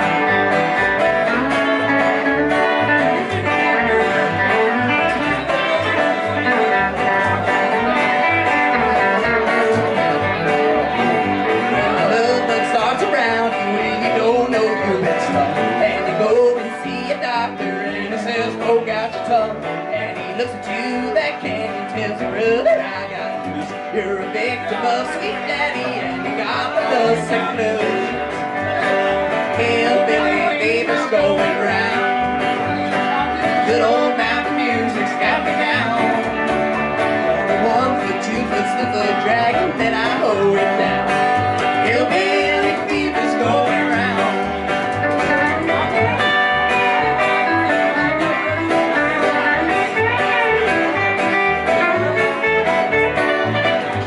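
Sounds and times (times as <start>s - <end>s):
electric and acoustic guitars: 0.0s - 54.0s
upright bass plucking: 0.0s - 54.0s.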